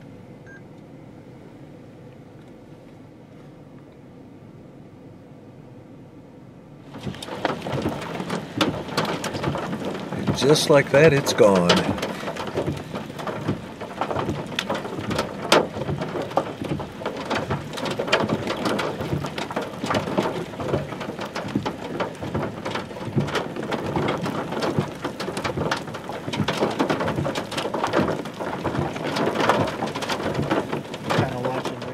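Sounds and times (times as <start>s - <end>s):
rain pattering: 6.8s - 31.9s
raindrops striking close by: 6.9s - 31.9s.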